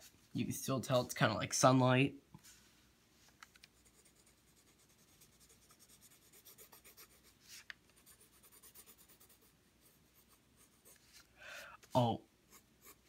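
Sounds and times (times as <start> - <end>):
pencil scratching on paper: 3.8 - 11.3, 12.5 - 13.0.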